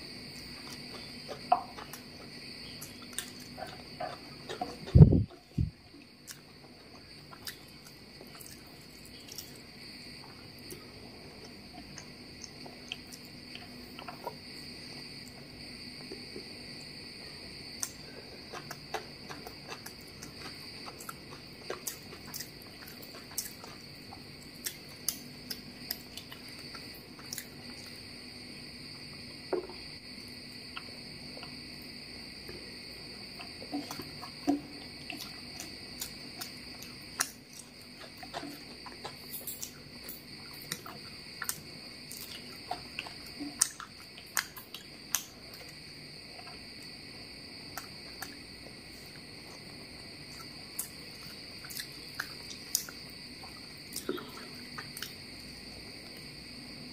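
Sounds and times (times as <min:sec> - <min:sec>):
chewing and lip smacks: 0:00.4 - 0:14.5, 0:17.8 - 0:28.0, 0:30.7 - 0:31.6, 0:33.2 - 0:45.8, 0:50.3 - 0:55.3.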